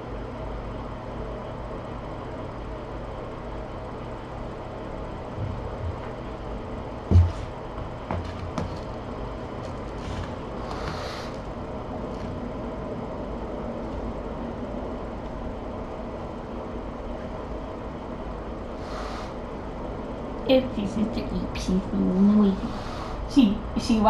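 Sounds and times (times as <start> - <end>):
room noise hum and hiss: 0.0 - 24.0
faint knocks: 7.1 - 9.0.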